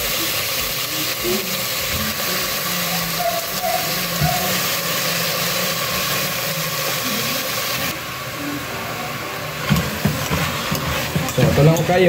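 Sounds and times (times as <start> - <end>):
chicken sizzling in hot oil: 0.0 - 8.3.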